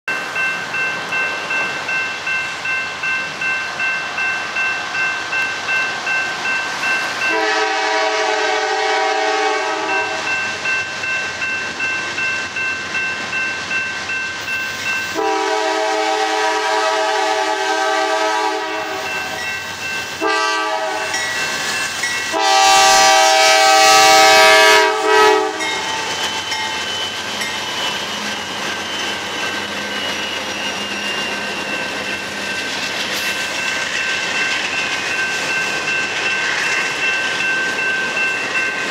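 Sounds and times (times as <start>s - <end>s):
train wheels rolling: 0.1s - 38.9s
locomotive air horn: 7.3s - 10.3s, 15.1s - 19.1s, 20.2s - 21.2s, 22.3s - 25.8s
pulsing ringing: 25.5s - 38.9s.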